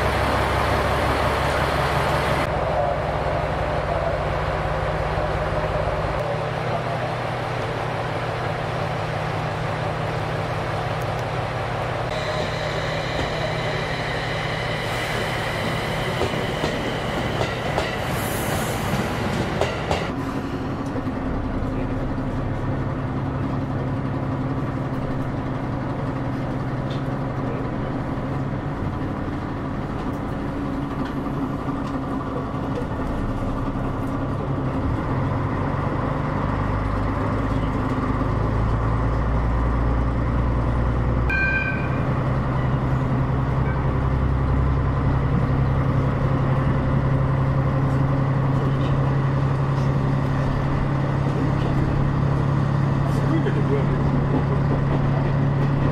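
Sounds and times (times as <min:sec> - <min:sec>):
diesel railcar engine drone: 0:00.0 - 0:55.9
high whine: 0:12.1 - 0:17.8, 0:41.3 - 0:44.0.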